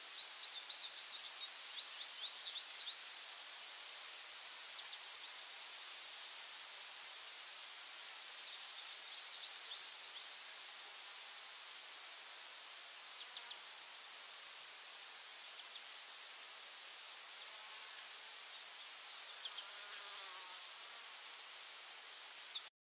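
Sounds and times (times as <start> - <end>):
rapid pulsed insect chirping: 0.0 - 22.7.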